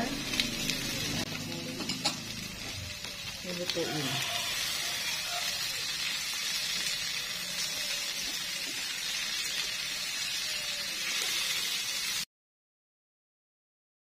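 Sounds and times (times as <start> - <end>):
vegetables sizzling in a frying pan: 0.0 - 12.3.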